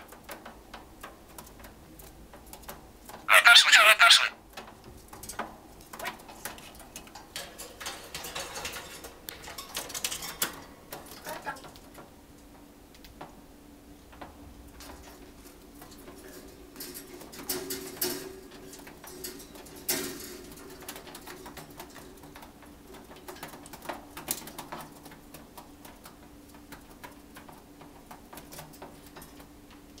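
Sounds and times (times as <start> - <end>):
claws and beak tapping wire cage: 0.0 - 13.3, 14.1 - 30.0
parrots cooing chatter: 3.3 - 4.4.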